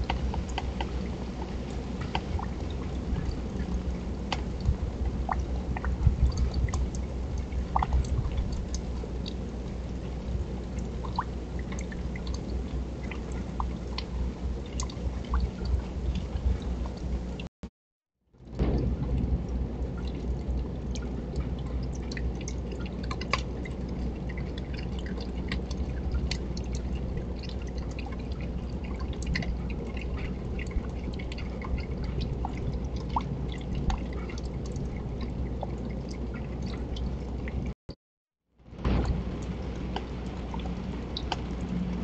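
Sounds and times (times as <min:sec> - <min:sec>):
drips ticking: 0:00.0 - 0:17.5, 0:18.4 - 0:37.8, 0:38.8 - 0:42.0
rain falling: 0:38.8 - 0:42.0.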